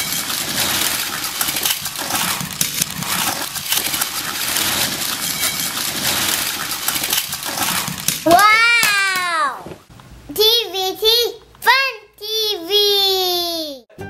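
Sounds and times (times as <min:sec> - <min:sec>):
toy trains clattering: 0:00.0 - 0:08.4.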